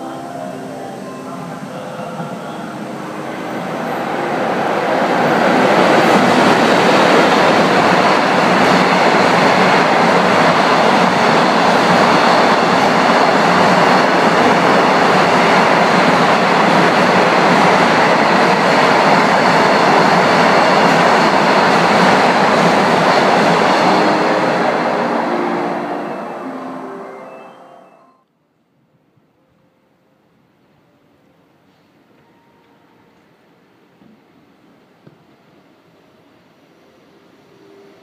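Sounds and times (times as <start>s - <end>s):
freight train wheels rumbling: 0.0s - 27.0s.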